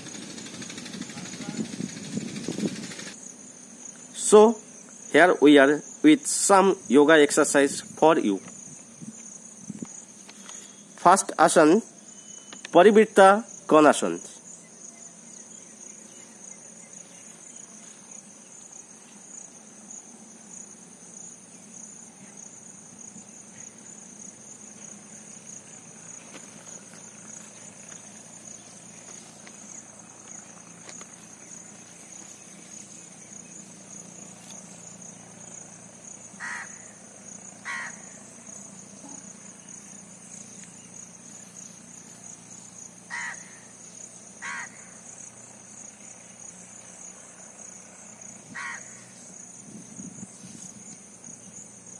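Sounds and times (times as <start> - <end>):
insects chirring: 0.0 - 51.9
short bird calls: 36.4 - 37.0, 37.6 - 38.2, 43.1 - 43.8, 44.4 - 45.0.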